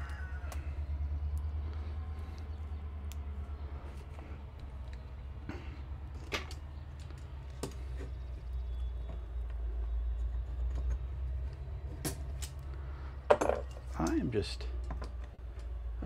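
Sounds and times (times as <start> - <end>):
steady low rumble: 0.0 - 10.6.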